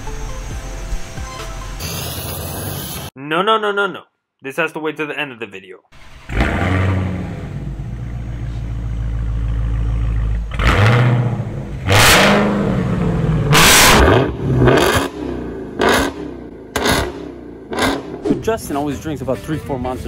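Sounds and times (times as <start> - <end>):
car engine idling and revving: 6.0 - 18.8.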